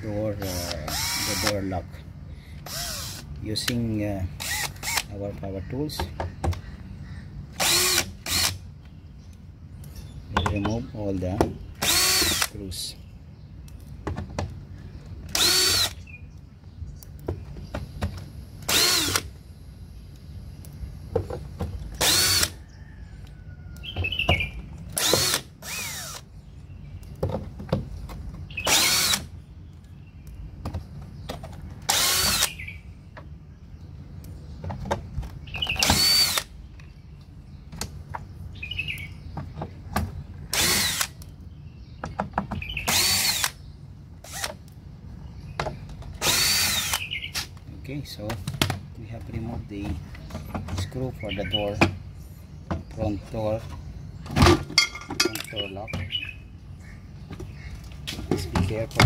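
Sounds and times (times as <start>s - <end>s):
cordless drill whining: 0.5s - 1.6s, 2.6s - 3.3s, 4.4s - 5.1s, 7.6s - 8.6s, 11.8s - 12.5s, 15.3s - 16.0s, 18.7s - 19.3s, 22.0s - 22.6s, 25.0s - 26.2s, 28.7s - 29.2s, 31.9s - 32.5s, 35.8s - 36.5s, 40.5s - 41.1s, 42.9s - 43.6s, 46.2s - 47.0s.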